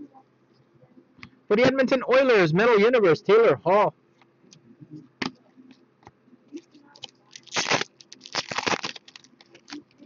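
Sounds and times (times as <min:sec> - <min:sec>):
foil wrapper crinkling and tearing: 0:07.0 - 0:10.0.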